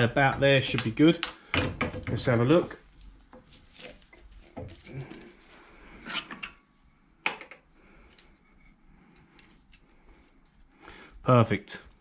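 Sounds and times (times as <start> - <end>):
metal clunks and scrapes: 6.0 - 6.6.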